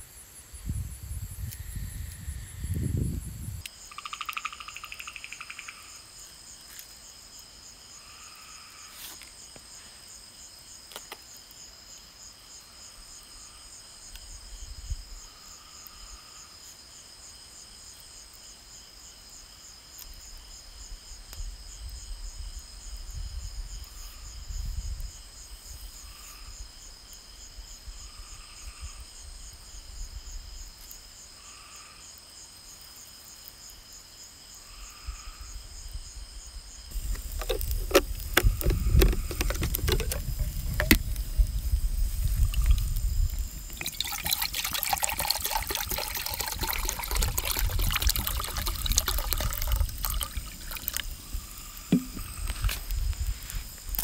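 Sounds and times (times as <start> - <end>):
crickets chirping trill: 0.0 - 54.0.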